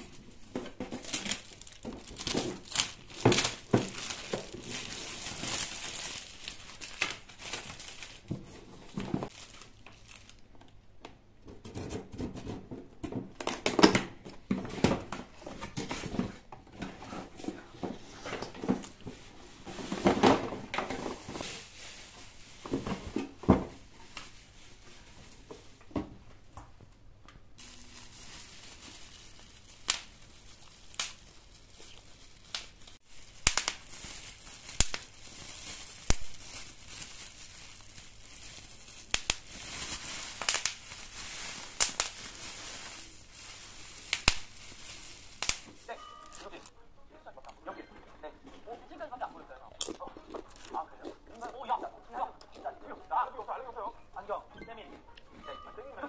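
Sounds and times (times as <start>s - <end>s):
packaging rustling and crinkling: 0.0s - 10.8s, 13.2s - 26.0s, 27.6s - 46.7s
sharp crackles: 27.6s - 46.7s.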